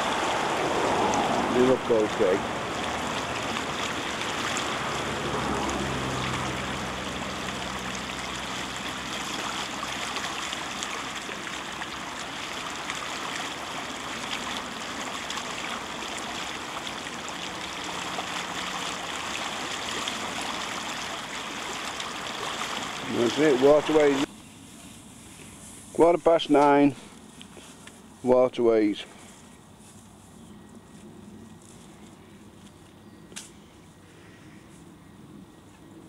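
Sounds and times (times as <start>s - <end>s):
floodwater rushing in a canal: 0.0s - 24.3s.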